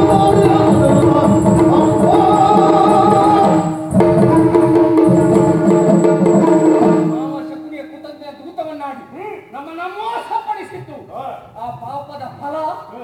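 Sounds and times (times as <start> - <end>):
person singing: 0.0 - 7.8
drums beating fast rhythm: 0.0 - 8.1.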